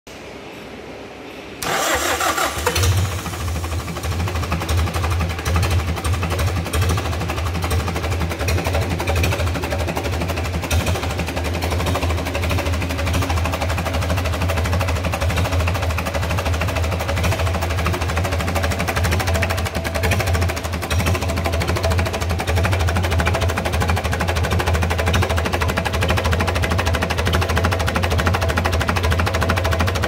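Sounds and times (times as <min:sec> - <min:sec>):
electric starter cranking: 0:01.6 - 0:04.3
diesel engine idling: 0:01.6 - 0:30.0.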